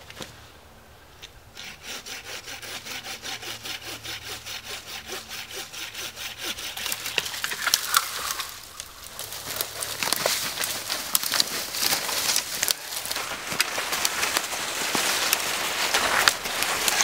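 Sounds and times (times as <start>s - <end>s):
hand saw cutting wood: 1.5s - 8.8s, 9.6s - 17.0s
wood cracking and snapping: 6.8s - 17.0s.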